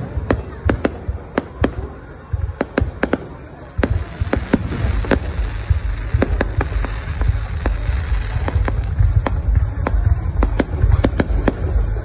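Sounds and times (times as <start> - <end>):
fireworks bangs: 0.0 - 12.0
low rumble: 3.9 - 12.0.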